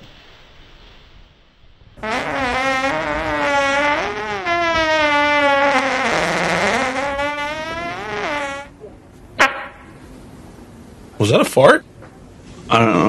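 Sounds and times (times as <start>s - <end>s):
long fart: 2.0s - 8.7s.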